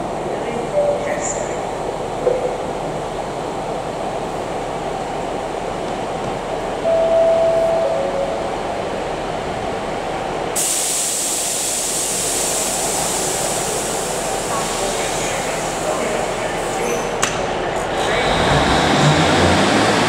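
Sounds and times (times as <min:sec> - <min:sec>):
train diesel engines running: 0:00.0 - 0:20.0
two-note tone: 0:06.9 - 0:08.7.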